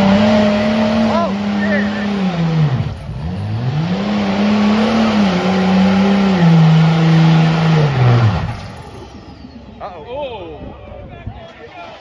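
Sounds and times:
diesel engine revving hard: 0.0 - 9.8.

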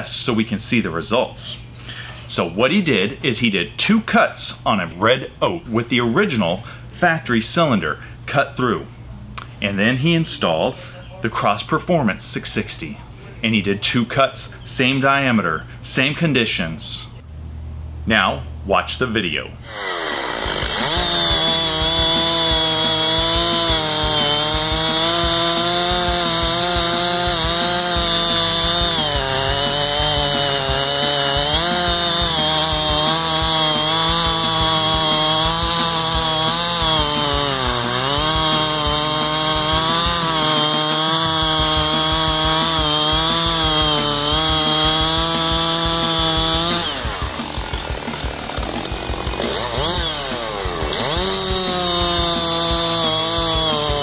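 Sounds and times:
chainsaw cutting log: 19.6 - 54.0.

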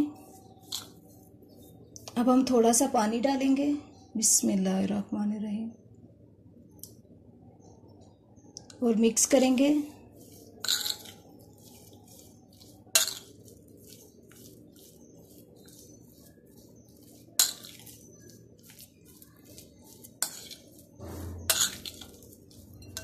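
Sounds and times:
spoon scraping batter: 0.0 - 2.1, 9.1 - 23.0.

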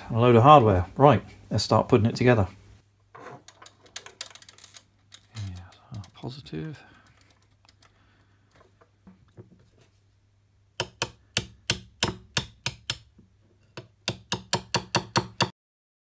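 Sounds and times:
hammer tapping on metal: 10.8 - 13.1, 13.8 - 15.5.

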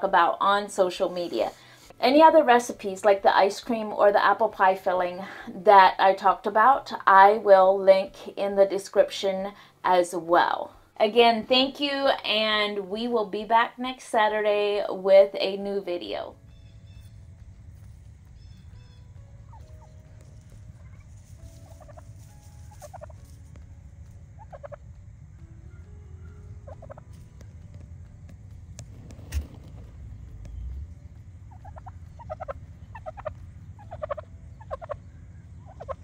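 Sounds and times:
turkey gobbling: 18.3 - 23.2, 24.4 - 25.0, 25.7 - 27.1, 29.2 - 36.0.

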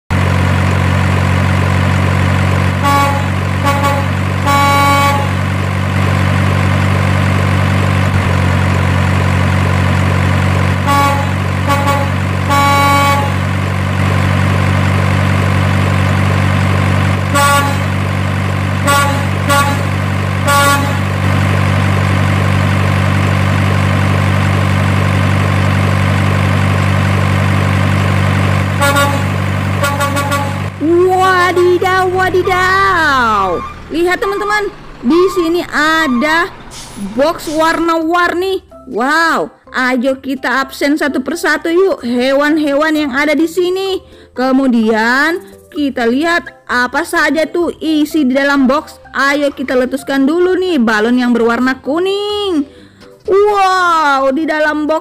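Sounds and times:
truck engine running: 0.0 - 38.9
short horn toots: 2.8 - 5.4, 10.8 - 13.4, 17.3 - 17.9, 18.9 - 21.1, 28.8 - 30.7.

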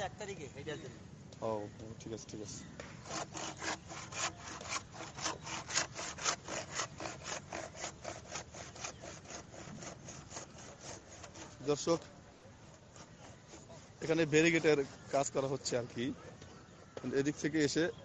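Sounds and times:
handsaw cutting bamboo: 3.0 - 12.0, 12.9 - 17.6.

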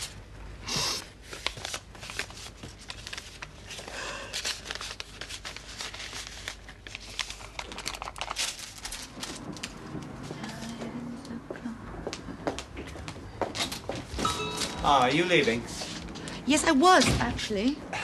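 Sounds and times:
paper rustling and crinkling: 1.1 - 10.8.

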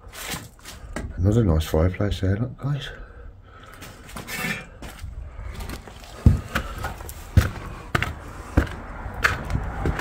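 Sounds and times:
heavy footsteps on gritty floor: 3.7 - 10.0.

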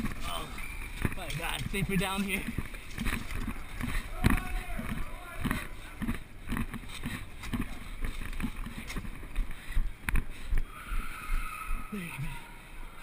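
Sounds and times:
camera jostling thumps and rustling: 0.9 - 10.3.

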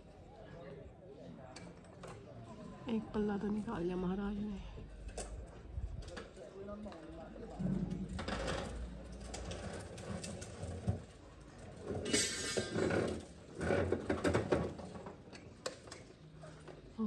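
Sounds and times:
metal rattling and scraping: 7.5 - 15.2.

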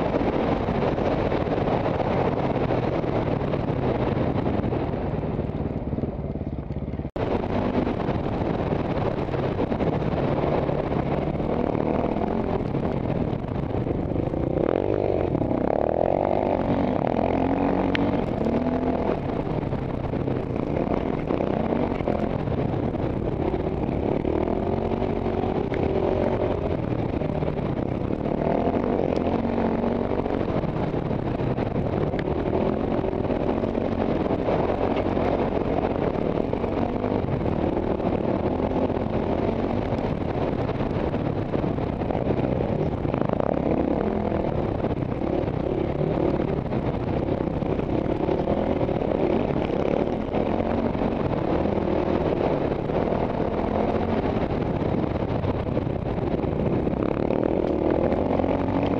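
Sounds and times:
motorcycle engine revving: 0.0 - 58.9
wind noise: 0.0 - 58.9.

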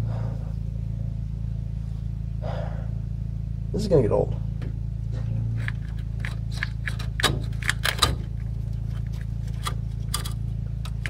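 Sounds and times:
steady low hum: 0.0 - 11.0
metallic clicks and scrapes: 5.5 - 11.0.

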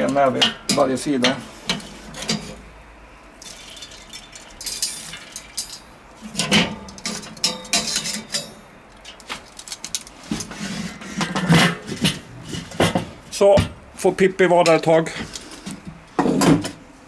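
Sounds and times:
wood chips dropped on charcoal: 3.4 - 10.4.

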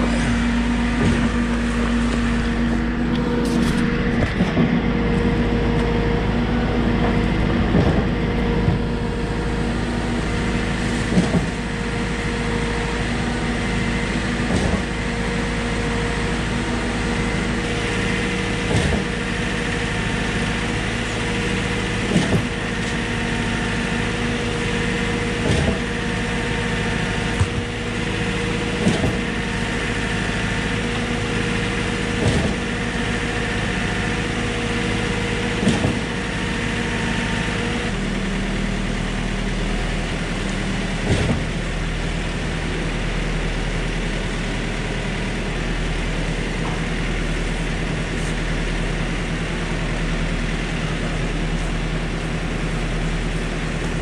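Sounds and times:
pump clunking: 0.0 - 36.9
pump engine humming: 0.0 - 54.0.

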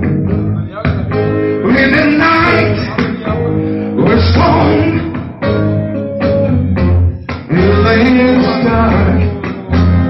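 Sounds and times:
blues band playing: 0.0 - 10.0
man singing: 1.6 - 5.6, 7.3 - 10.0.

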